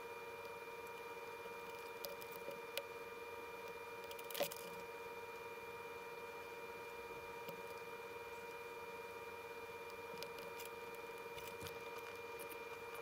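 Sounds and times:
steady hum: 0.0s - 13.0s
soldering clicks and crackle: 0.4s - 3.0s, 3.6s - 5.5s, 7.2s - 13.0s.

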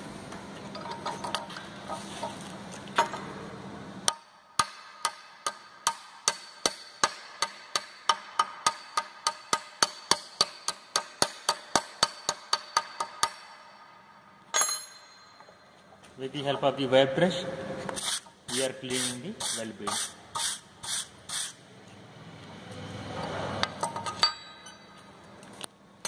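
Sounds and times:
hammer striking steel: 4.1s - 15.5s.

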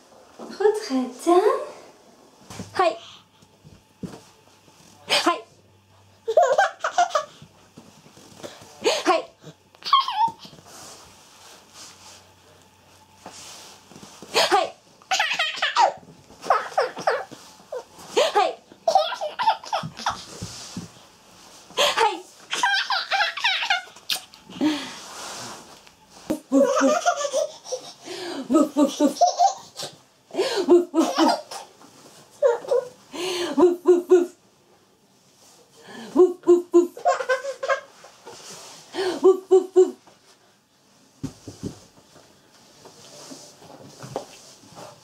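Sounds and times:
baby laughing and giggling: 6.3s - 7.4s, 9.8s - 10.5s, 15.1s - 17.8s, 18.8s - 20.3s, 22.5s - 24.3s, 26.3s - 28.0s, 28.6s - 29.9s, 30.7s - 31.7s, 36.4s - 37.9s
person laughing: 26.3s - 27.5s, 28.4s - 29.3s, 30.5s - 31.5s, 33.5s - 34.4s, 36.2s - 37.7s, 39.0s - 40.0s.

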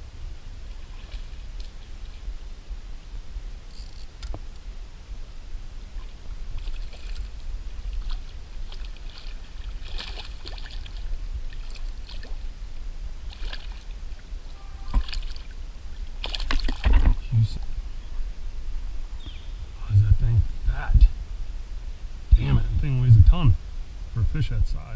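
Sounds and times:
steady low rumble: 0.0s - 24.9s
fish splashing at the surface: 6.0s - 12.4s, 13.2s - 14.0s, 14.9s - 15.6s, 16.2s - 17.2s.

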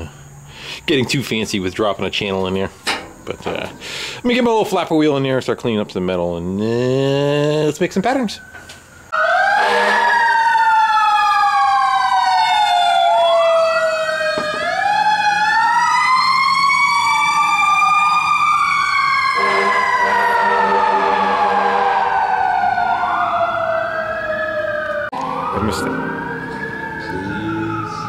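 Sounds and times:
fire truck sirens wailing: 8.1s - 28.0s.

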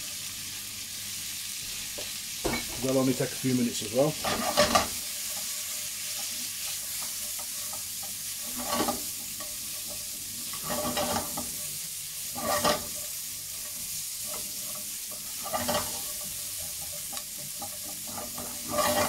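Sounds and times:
food sizzling in hot oil: 0.0s - 19.0s
spatula scraping a pan: 4.1s - 19.0s.

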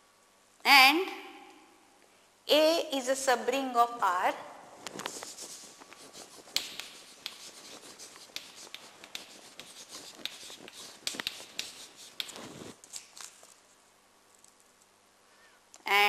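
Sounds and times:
chalk scratching on blackboard: 5.0s - 12.8s.

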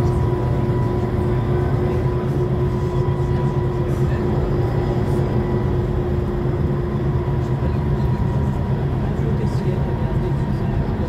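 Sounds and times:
bus diesel engine drone: 0.0s - 11.0s
steady whine: 0.0s - 11.0s.

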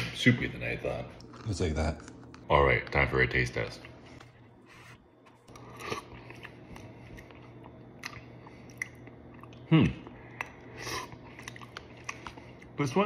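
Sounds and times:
wet chewing with mouth clicks: 5.2s - 12.8s.

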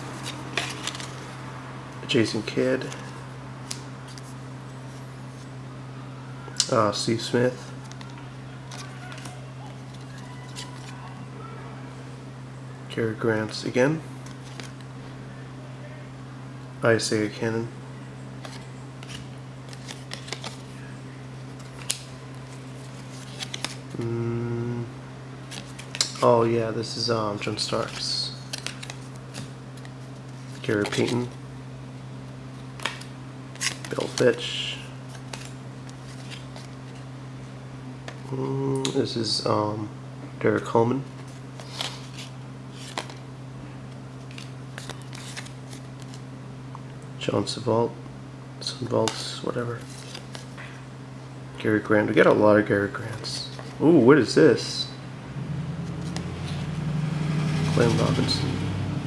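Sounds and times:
steady low hum: 0.0s - 59.0s
cards sliding and clicking: 0.1s - 1.3s, 14.2s - 14.8s, 18.4s - 20.8s, 21.4s - 24.1s, 27.7s - 31.3s, 35.1s - 37.0s, 41.2s - 43.2s, 44.2s - 46.2s
cards flicking and sliding: 18.4s - 20.8s, 21.5s - 24.1s, 32.7s - 34.4s, 41.2s - 43.2s.

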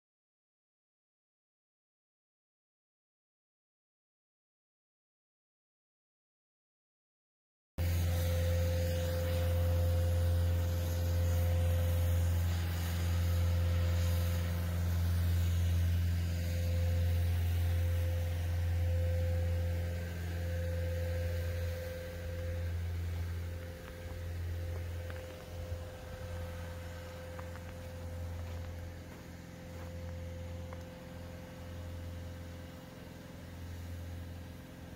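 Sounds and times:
diesel engine humming: 7.8s - 34.9s.

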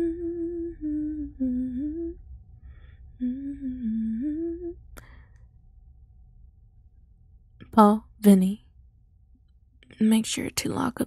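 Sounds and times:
woman humming a gentle melody: 0.0s - 2.2s, 3.2s - 5.1s.

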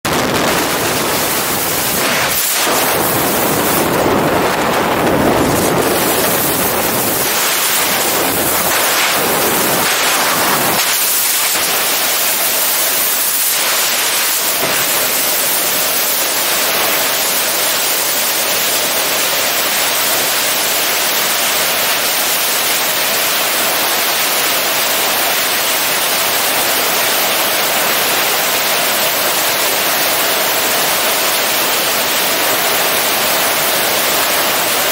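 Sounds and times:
helicopter rotor wind rushing: 0.0s - 21.4s.

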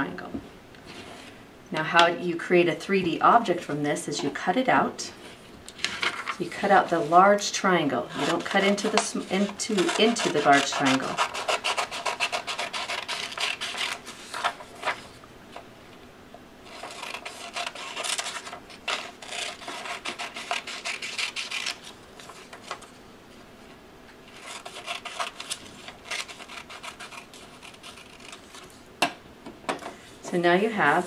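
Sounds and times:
scissors cutting paper: 8.1s - 15.0s, 16.6s - 22.9s, 24.3s - 28.7s.

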